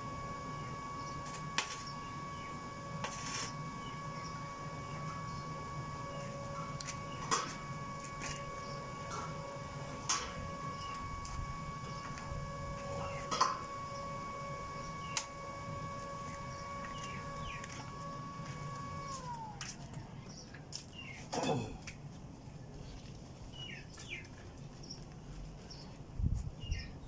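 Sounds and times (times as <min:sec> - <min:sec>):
welding machine hum: 0:00.0 - 0:21.2.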